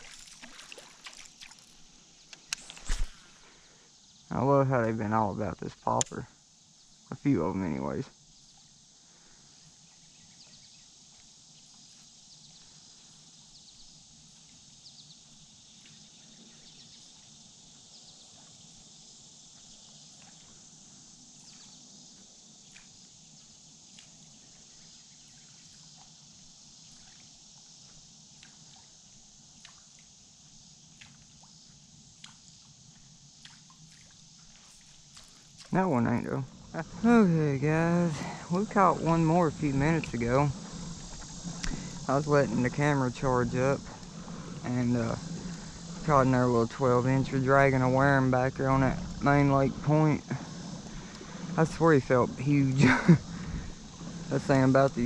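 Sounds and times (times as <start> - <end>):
water lapping against hull: 0.0 - 1.9, 30.9 - 55.0
faint high hiss: 0.0 - 55.0.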